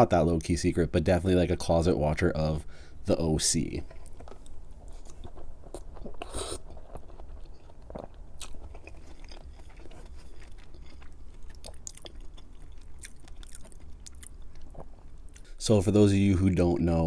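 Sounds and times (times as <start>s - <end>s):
wet chewing: 3.8s - 15.5s.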